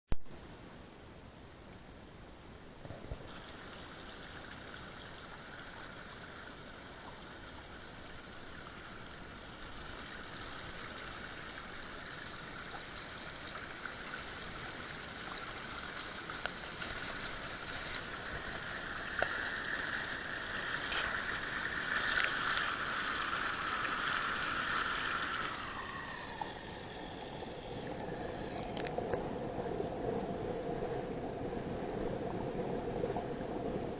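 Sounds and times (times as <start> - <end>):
creek pouring over rocks: 2.8 - 29.5.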